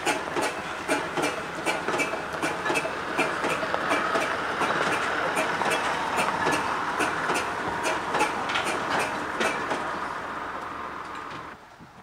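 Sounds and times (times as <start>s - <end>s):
steam engine beats: 0.0s - 11.0s
steam hissing: 0.0s - 11.0s.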